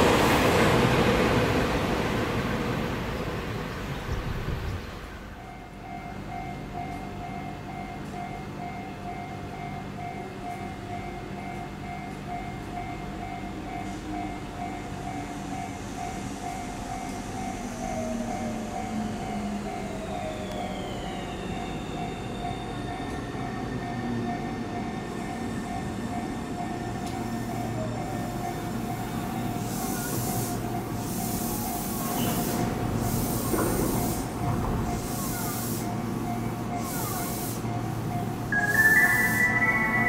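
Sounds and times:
train steady hum: 0:00.0 - 0:40.0
electric train braking: 0:15.0 - 0:40.0
chime melody: 0:38.5 - 0:40.0.

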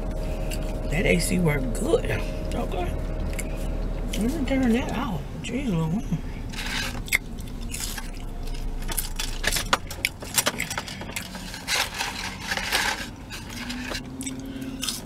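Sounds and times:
paper packaging crinkling: 0:07.6 - 0:14.4.

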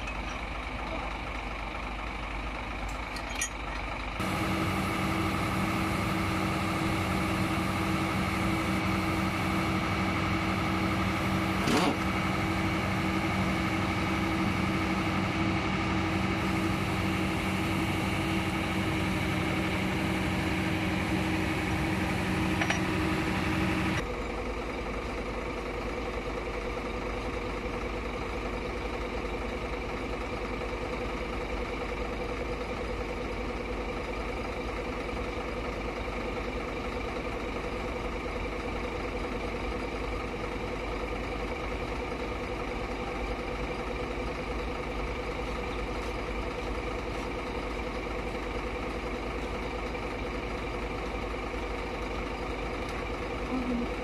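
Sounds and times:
engine idling: 0:00.0 - 0:54.0
louder engine layer: 0:04.2 - 0:24.1.

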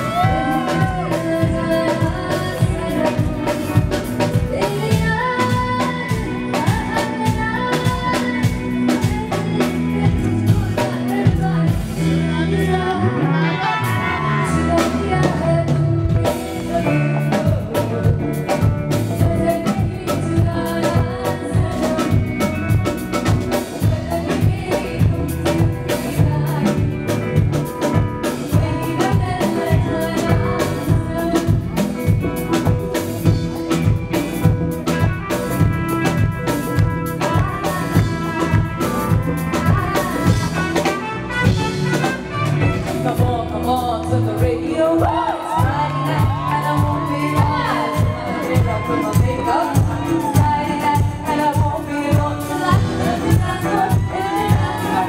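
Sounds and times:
drum kit beat: 0:00.0 - 0:12.8, 0:13.8 - 0:55.0
women singing into microphones: 0:00.0 - 0:22.8, 0:23.5 - 0:27.5, 0:28.3 - 0:32.4, 0:42.8 - 0:55.0
backing music: 0:00.0 - 0:55.0.

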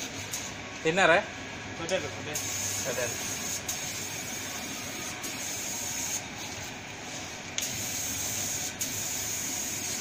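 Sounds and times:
paint spray gun hissing: 0:02.4 - 0:06.6, 0:07.6 - 0:10.0.

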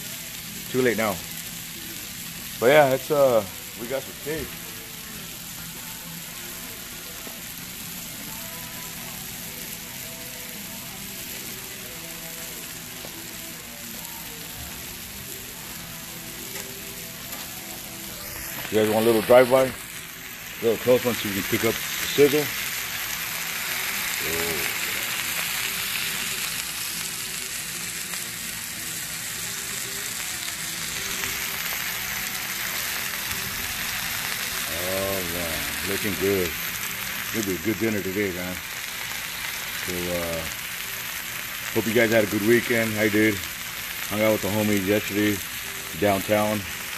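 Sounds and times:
steaks sizzling on a griddle: 0:00.0 - 0:46.9.

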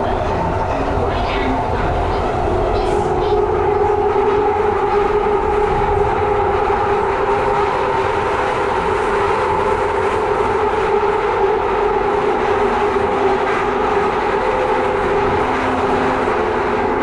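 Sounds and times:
steady train whine: 0:00.0 - 0:17.0
train rumbling through tunnel: 0:00.0 - 0:17.0.

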